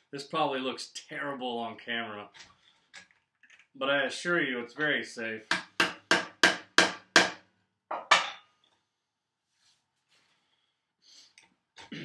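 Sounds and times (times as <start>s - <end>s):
mallet striking a chisel: 5.5s - 8.4s.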